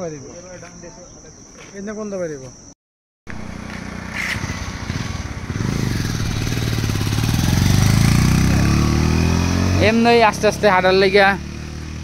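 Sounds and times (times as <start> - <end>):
vehicle engine passing by: 3.3 - 12.0.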